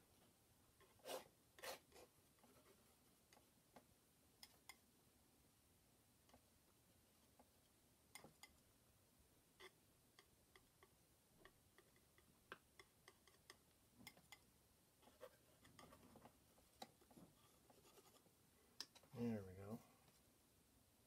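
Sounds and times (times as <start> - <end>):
palette knife scraping paint: 0.8 - 2.8.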